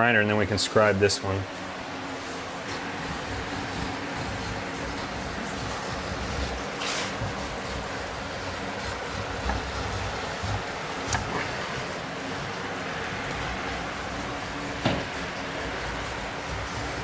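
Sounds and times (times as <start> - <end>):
knife scraping along straightedge: 2.6 - 12.6, 13.3 - 17.0.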